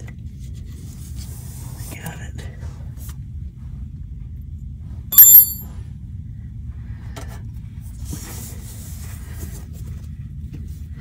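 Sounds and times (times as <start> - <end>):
sharp metallic clink: 5.2 - 5.7.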